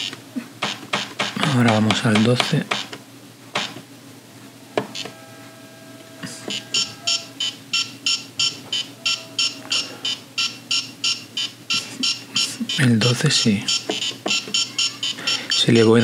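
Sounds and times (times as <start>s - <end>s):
short electronic beeps: 6.4s - 12.9s, 13.6s - 15.9s.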